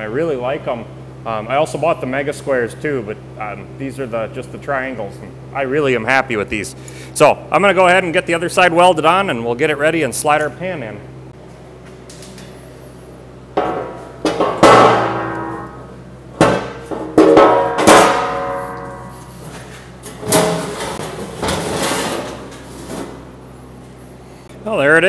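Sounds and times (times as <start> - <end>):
sheet steel clanging and scraping: 13.6 - 23.3.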